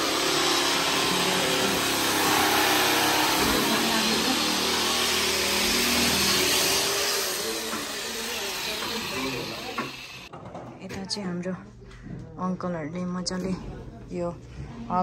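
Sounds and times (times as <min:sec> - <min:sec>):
small motor whirring: 0:00.0 - 0:10.3.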